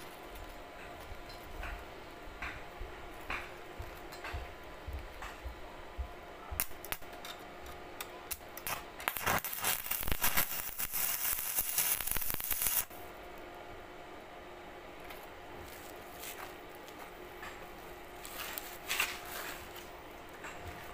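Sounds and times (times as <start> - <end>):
welding arc crackling: 6.6 - 7.1, 8.3 - 13.0
welding electrode spits: 8.3 - 13.0.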